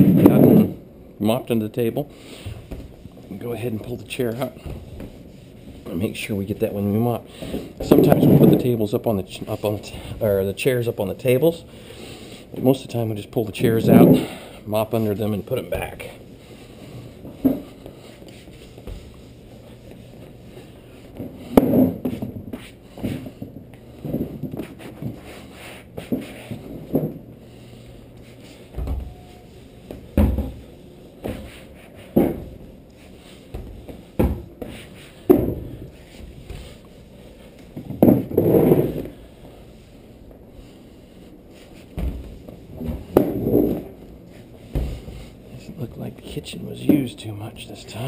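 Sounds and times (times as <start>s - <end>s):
cloth wiping a table: 3.6s - 6.7s.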